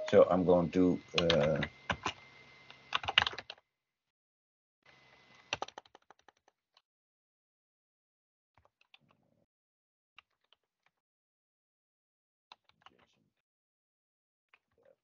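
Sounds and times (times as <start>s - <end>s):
keyboard typing: 2.9s - 3.6s, 5.4s - 6.4s.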